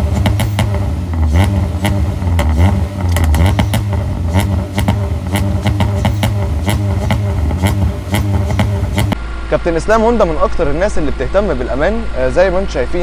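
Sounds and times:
car engine revving: 0.0s - 9.6s
exhaust cracks: 0.0s - 12.8s.

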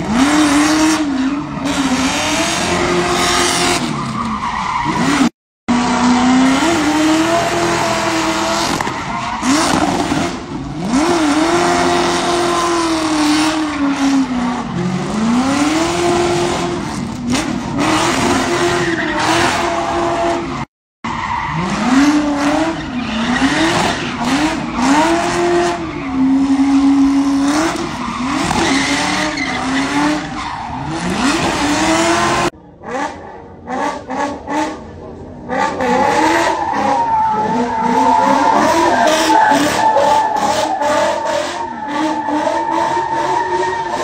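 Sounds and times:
car engine revving: 0.0s - 44.0s.

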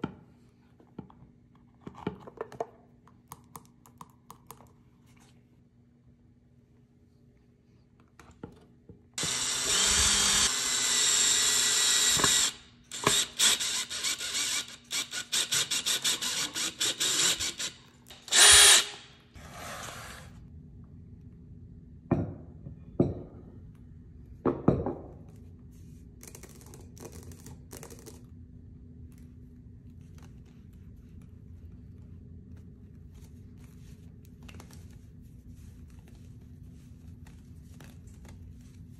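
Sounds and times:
cordless drill driving a screw: 9.2s - 19.1s.

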